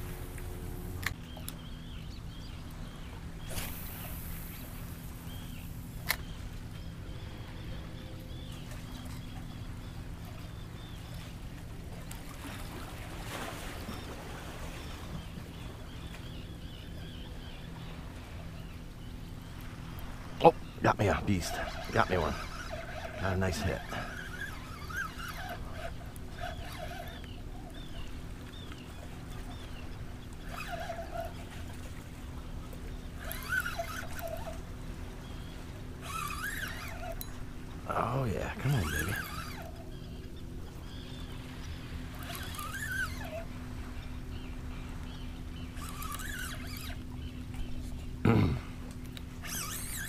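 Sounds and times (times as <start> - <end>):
birds calling: 0.0 - 50.0
steady low hum: 0.0 - 50.0
water: 0.0 - 50.0
wind: 0.0 - 50.0
animal calls rising and falling: 21.0 - 28.1, 30.3 - 31.7, 33.2 - 34.6, 35.9 - 37.2, 42.1 - 43.6, 45.7 - 47.1, 49.4 - 50.0.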